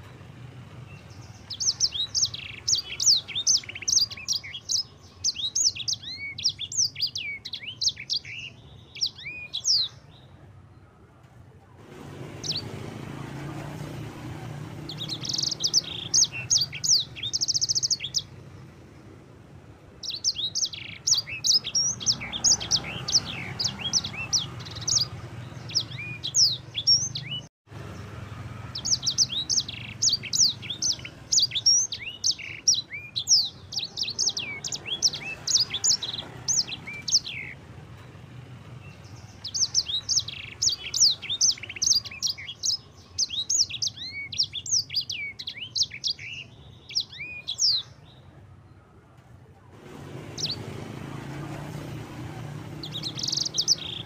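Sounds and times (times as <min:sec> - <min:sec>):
bird singing high chirps: 0:00.8 - 0:10.4, 0:12.3 - 0:13.6, 0:14.3 - 0:18.4, 0:20.0 - 0:38.1, 0:38.8 - 0:48.4, 0:50.1 - 0:54.0.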